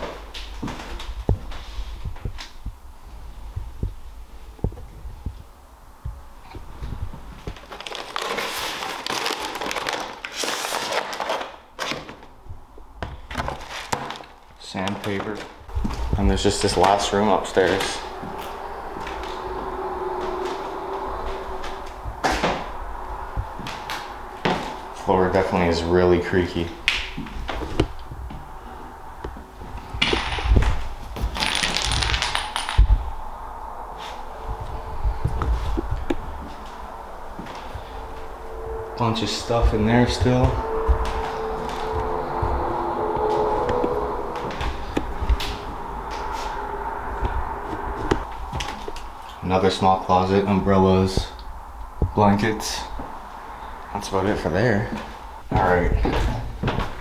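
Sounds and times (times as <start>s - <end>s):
sandpaper pack crinkling and scraping: 7.5s - 11.6s
footsteps on wooden floor: 54.9s - 57.0s.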